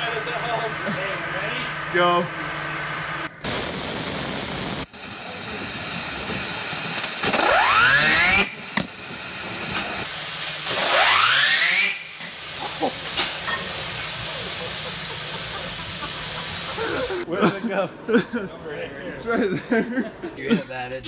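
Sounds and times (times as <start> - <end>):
waterjet hissing on steel: 0.6 - 17.3
spinner whine: 4.3 - 17.3.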